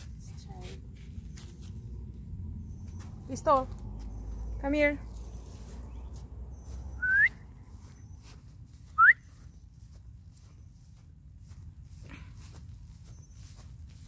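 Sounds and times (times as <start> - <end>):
person whistling rising whistles: 7.0 - 7.4, 9.0 - 9.3.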